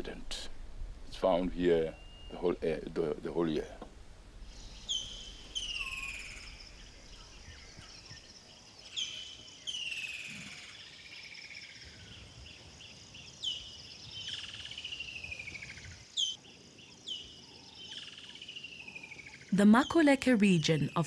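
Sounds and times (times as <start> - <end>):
bird call with falling trill: 1.9 - 2.5, 4.6 - 8.3.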